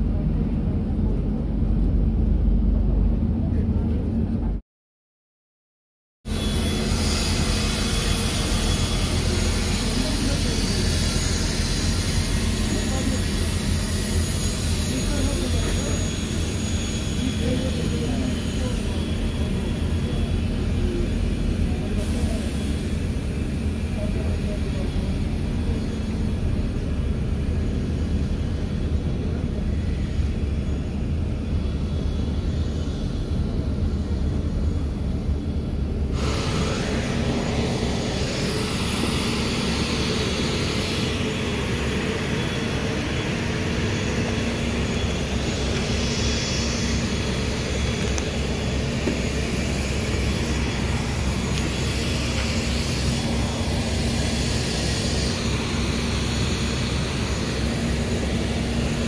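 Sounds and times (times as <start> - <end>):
aircraft engine hum: 0.0 - 4.6, 6.3 - 59.0
bus interior rumble: 0.0 - 4.6, 7.7 - 16.6, 17.3 - 59.0
hissing outdoor din: 36.1 - 59.0.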